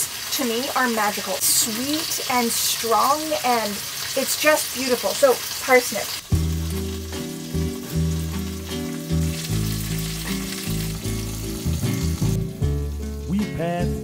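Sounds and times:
food frying hiss: 0:00.0 - 0:14.0
background music with bass line: 0:06.2 - 0:14.0.

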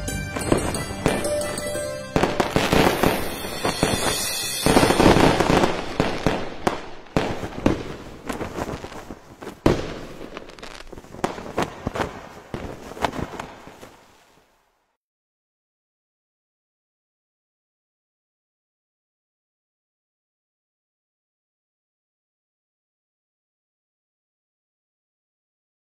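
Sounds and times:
music: 0:00.0 - 0:06.2
fireworks bursting and crackling: 0:00.0 - 0:14.8.

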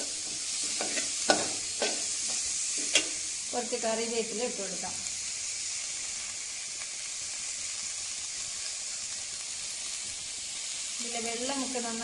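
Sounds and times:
leaves sizzling in hot oil: 0:00.0 - 0:12.0.

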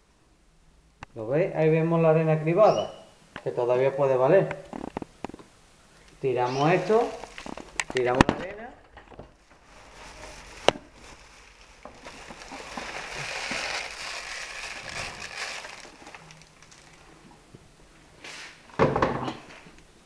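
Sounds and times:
sand pouring into plastic bag: 0:09.6 - 0:17.1.

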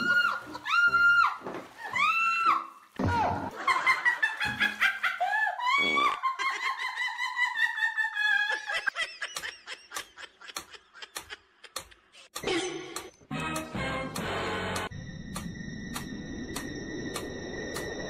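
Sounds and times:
high wavering laughter: 0:03.6 - 0:13.0.

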